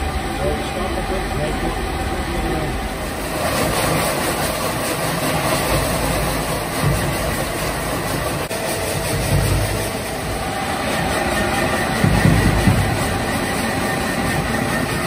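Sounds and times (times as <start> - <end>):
shredding machine running: 0.0 - 15.0.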